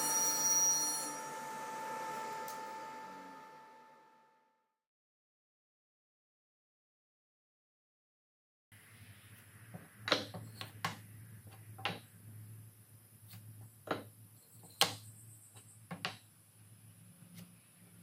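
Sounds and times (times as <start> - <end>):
wooden blocks knocking: 13.8 - 15.0.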